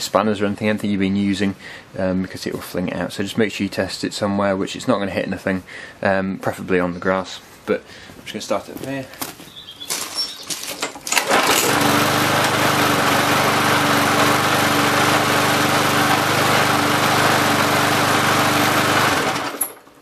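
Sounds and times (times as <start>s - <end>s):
lawn mower engine starting and running: 10.0s - 20.0s.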